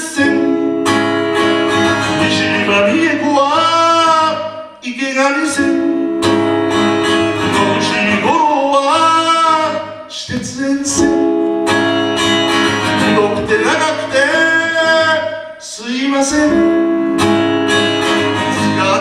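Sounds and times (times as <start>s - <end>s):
man singing: 0.0s - 11.9s, 12.8s - 17.3s, 18.3s - 19.0s
strummed acoustic guitar: 0.0s - 19.0s.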